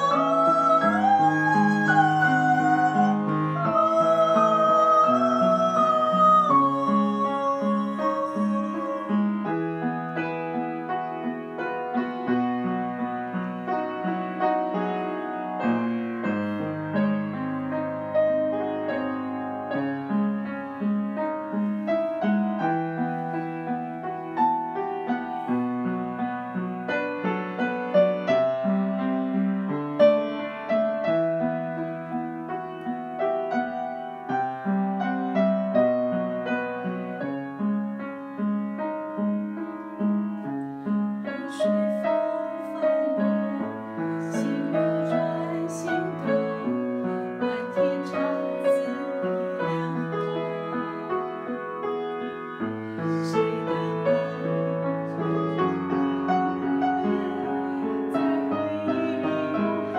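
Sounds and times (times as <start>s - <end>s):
upright piano piece: 0.0s - 59.9s.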